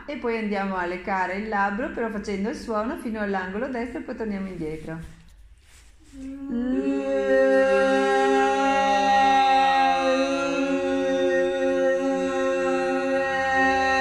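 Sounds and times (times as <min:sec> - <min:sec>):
woman holding a vocal tone: 0:06.2 - 0:14.0.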